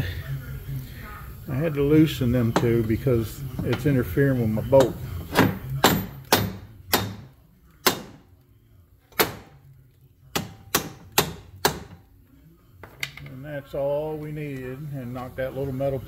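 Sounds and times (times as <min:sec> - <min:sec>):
hammer striking metal: 0:04.8 - 0:08.2, 0:10.3 - 0:12.0.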